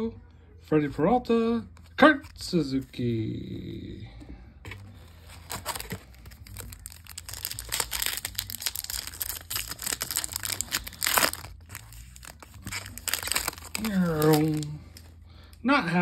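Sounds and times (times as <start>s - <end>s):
foil wrapper crinkling and tearing: 5.2s - 15.2s.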